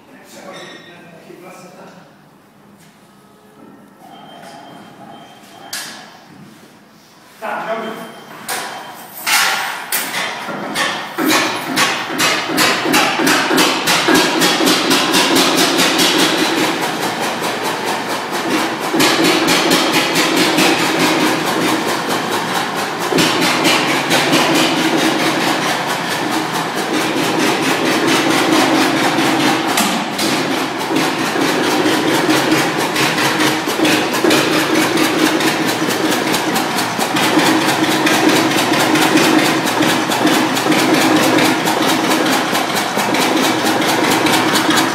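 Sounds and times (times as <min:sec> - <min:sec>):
tractor engine knocking: 0:10.1 - 0:44.9.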